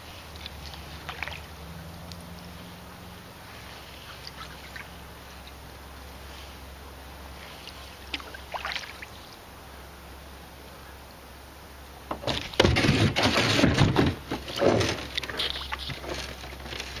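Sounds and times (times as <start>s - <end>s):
faint water drips: 0.0s - 2.8s, 3.5s - 6.5s, 7.4s - 9.4s
paddle splashing water: 0.0s - 2.8s, 3.4s - 5.6s, 7.4s - 9.4s, 12.3s - 17.0s.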